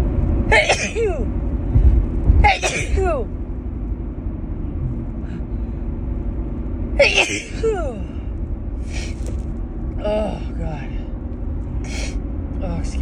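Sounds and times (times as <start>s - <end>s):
low hum: 0.0s - 13.0s
woman sneezing: 0.5s - 1.3s, 2.5s - 3.1s.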